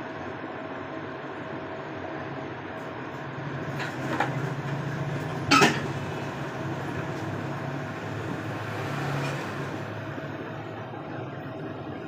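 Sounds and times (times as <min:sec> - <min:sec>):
tool clattering on bench: 0:05.5 - 0:05.9.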